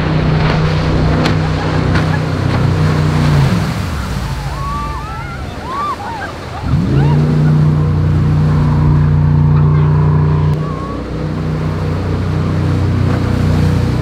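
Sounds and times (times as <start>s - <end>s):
jet boat engine droning: 0.0s - 14.0s
spraying water rushing: 0.0s - 14.0s
riders shouting: 4.4s - 11.0s.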